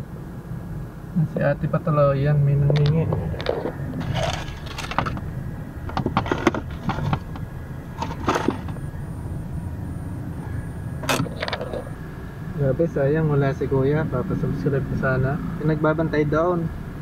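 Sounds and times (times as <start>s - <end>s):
vehicle engine idling: 1.0s - 17.0s
knocks and clicks: 5.9s - 8.8s
faint high broken beeping: 8.0s - 12.0s.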